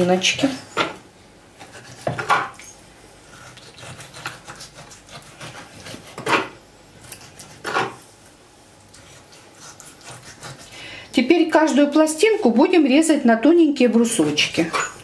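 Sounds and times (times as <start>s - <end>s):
knife slicing meat on a board: 1.6s - 2.6s, 3.4s - 8.0s, 9.0s - 10.8s.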